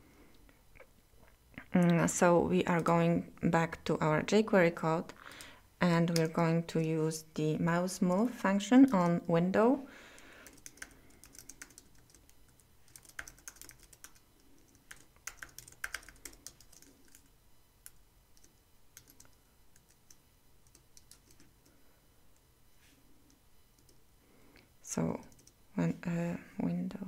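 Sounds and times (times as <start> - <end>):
typing on computer keyboard: 10.4 - 21.5, 23.8 - 24.0, 25.3 - 25.6.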